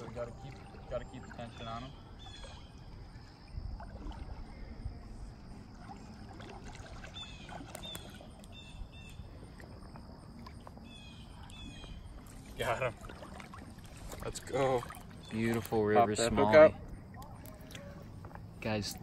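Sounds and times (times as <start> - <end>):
water sloshing and splashing: 0.0 - 19.0
bird chirping: 10.8 - 12.3.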